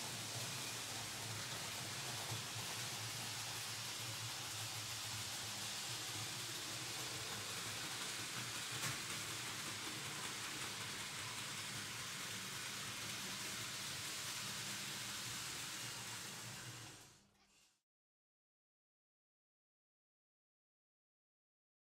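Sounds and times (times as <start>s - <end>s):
model train wheels rattling on track: 0.0s - 17.3s.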